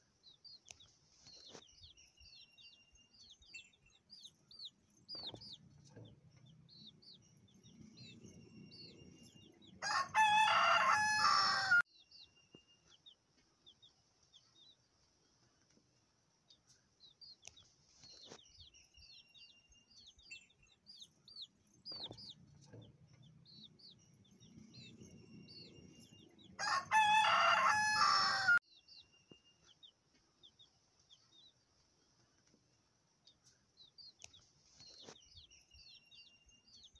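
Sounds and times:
rooster crowing: 0:09.8 - 0:11.8, 0:26.6 - 0:28.6.

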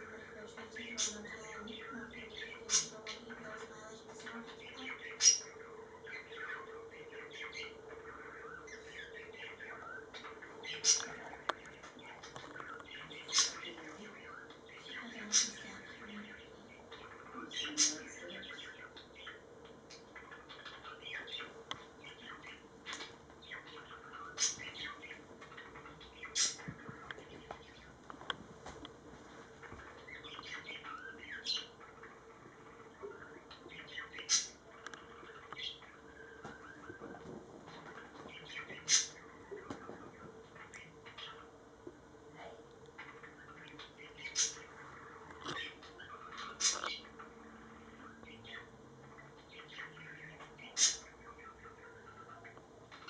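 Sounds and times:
budgerigars chattering and warbling: 0:00.0 - 0:28.0, 0:29.6 - 0:41.7, 0:42.9 - 0:53.0
faint steady hum: 0:00.0 - 0:53.0.

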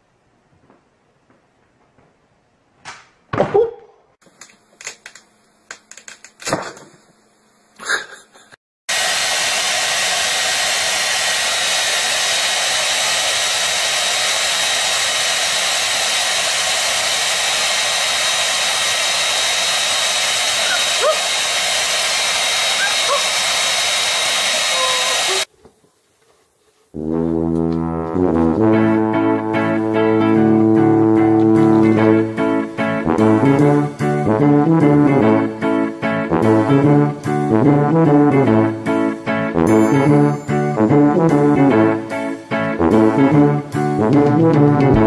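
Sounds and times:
hair dryer blowing: 0:08.9 - 0:25.5
knocks and thumps: 0:44.2 - 0:45.0.

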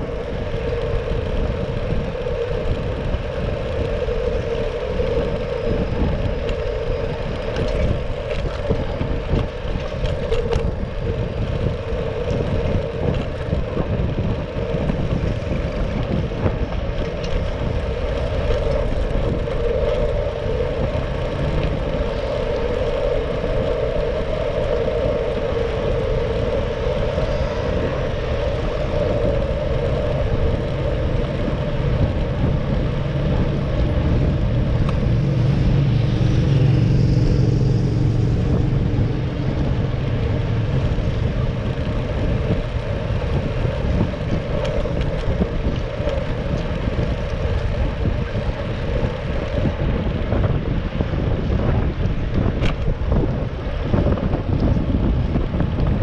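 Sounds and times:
bicycle road rumble: 0:00.0 - 0:56.0
city traffic: 0:00.0 - 0:56.0
wind noise: 0:00.0 - 0:56.0.

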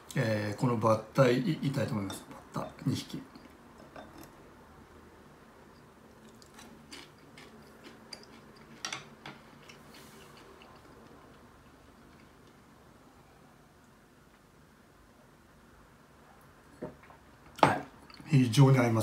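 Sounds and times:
person chewing with crunches: 0:06.2 - 0:12.6.

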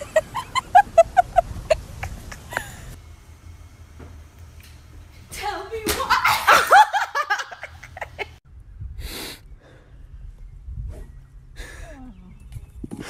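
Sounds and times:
woman shrieking and laughing: 0:00.0 - 0:03.0, 0:06.0 - 0:08.1.

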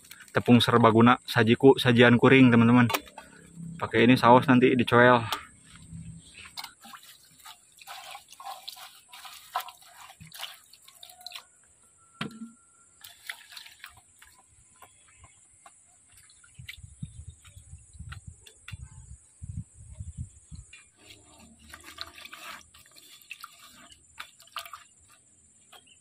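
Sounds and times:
water splashing and dripping: 0:05.6 - 0:18.8, 0:20.7 - 0:25.8
water pouring from bottle: 0:05.7 - 0:11.6, 0:13.0 - 0:15.2, 0:21.0 - 0:25.2.

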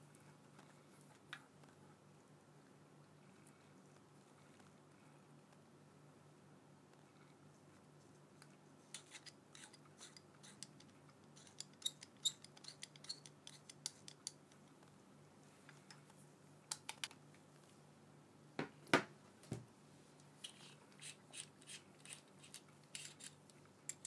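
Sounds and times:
small plastic parts clicking: 0:09.0 - 0:14.9.

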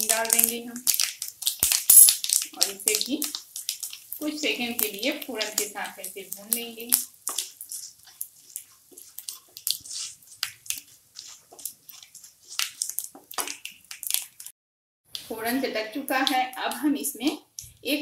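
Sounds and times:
faint sizzle: 0:00.0 - 0:14.5
seeds popping in hot oil: 0:00.0 - 0:14.5, 0:16.0 - 0:17.9
spatula scraping pan: 0:02.5 - 0:13.7.

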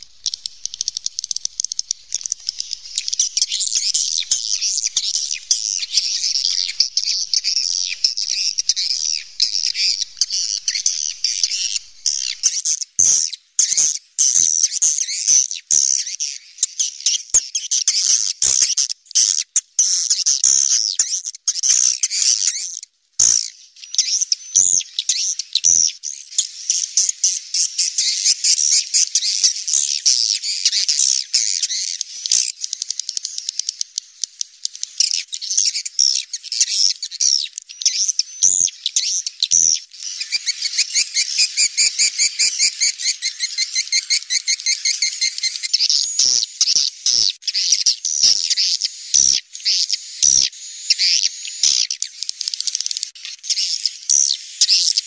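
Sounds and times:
buzzy bird trill: 0:00.0 - 0:12.6, 0:35.0 - 0:46.4
birds twittering chirps: 0:00.0 - 0:22.8, 0:23.4 - 0:55.0.

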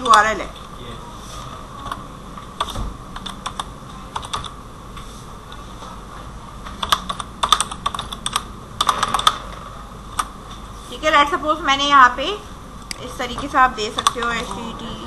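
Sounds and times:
typing on a computer keyboard: 0:02.6 - 0:04.5, 0:06.8 - 0:09.4, 0:14.0 - 0:14.4.

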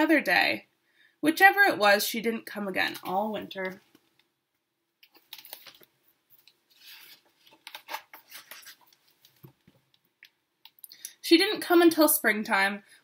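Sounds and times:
book pages rustling: 0:05.0 - 0:10.0.

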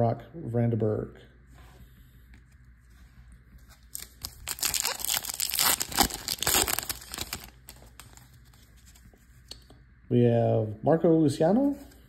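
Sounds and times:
foil wrapper crinkling and tearing: 0:03.8 - 0:08.9.

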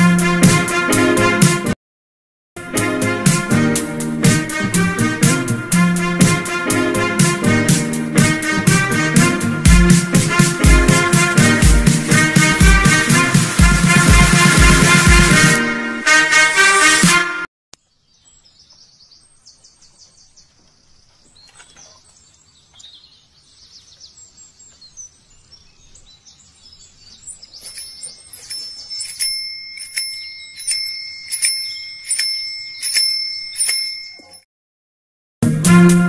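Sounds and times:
birds chirping faintly: 0:17.8 - 0:34.0
bell ringing rhythmically: 0:27.7 - 0:34.5.

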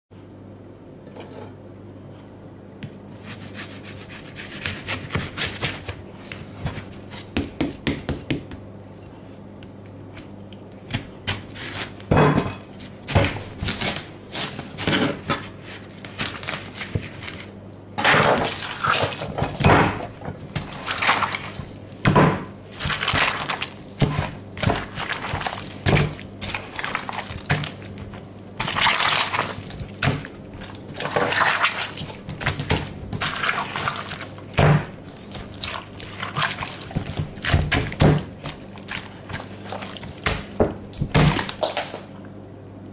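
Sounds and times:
knife cutting watermelon: 0:03.0 - 0:06.4
wet crunches and squelches: 0:22.7 - 0:42.2.

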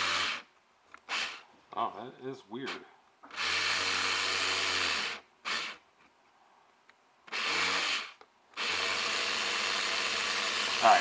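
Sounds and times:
small electric motor whirring: 0:07.3 - 0:11.0.

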